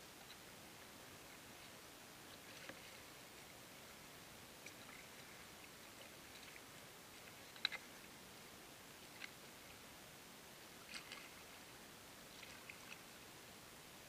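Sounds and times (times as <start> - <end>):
faint hiss: 0.0 - 14.0
soft ticks: 7.2 - 7.9.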